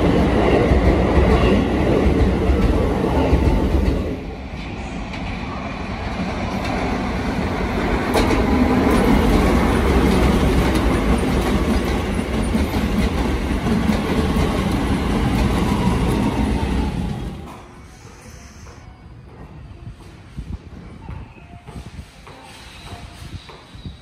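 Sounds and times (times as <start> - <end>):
electric train wheels rumbling: 0.0 - 20.4
wheels clacking on rail: 7.8 - 16.6.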